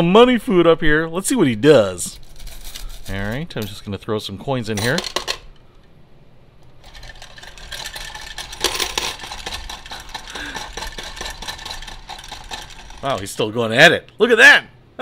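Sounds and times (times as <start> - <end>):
coins clinking: 2.1 - 4.0, 4.7 - 5.6, 6.8 - 13.5
toy motor and gears whirring: 6.8 - 13.4.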